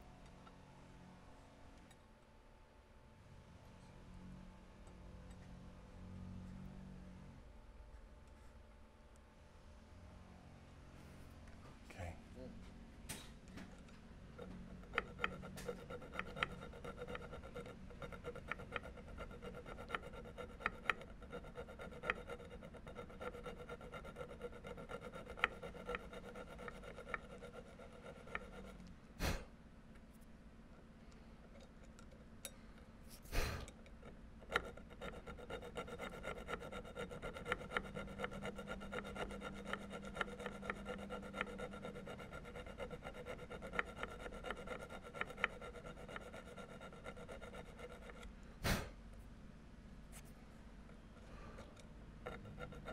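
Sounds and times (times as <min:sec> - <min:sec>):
file scraping on metal: 0:14.3 - 0:29.4, 0:33.1 - 0:48.9, 0:51.3 - 0:52.9.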